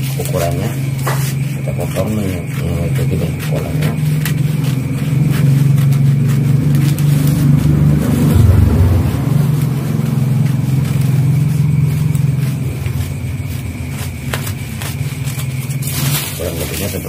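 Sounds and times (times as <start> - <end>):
scissors cutting newspaper: 0.0 - 8.6, 9.4 - 17.0
loud low engine-like hum: 4.0 - 13.8.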